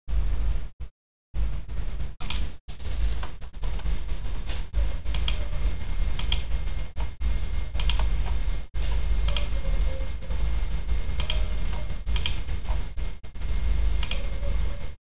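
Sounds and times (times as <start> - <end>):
steady low hum: 0.1 - 15.0
keyboard and mouse clicking: 2.2 - 2.5, 5.1 - 5.5, 6.2 - 7.2, 7.8 - 9.6, 11.2 - 12.9, 14.0 - 14.4.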